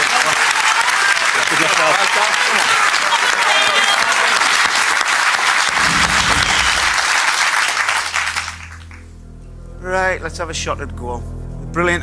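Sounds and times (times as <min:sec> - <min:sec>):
audience applauding: 0:00.0 - 0:09.0
low background music: 0:05.8 - 0:12.0.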